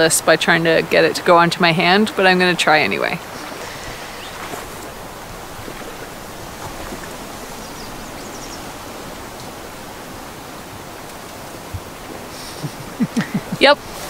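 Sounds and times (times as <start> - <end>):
outdoor hiss: 3.2 - 14.0.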